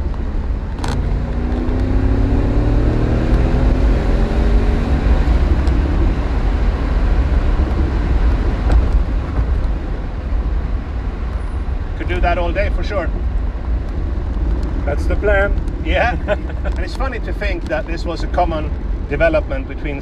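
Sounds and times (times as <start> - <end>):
car engine pulling through a gear: 0.0 - 11.6
road rumble inside car: 0.0 - 20.0.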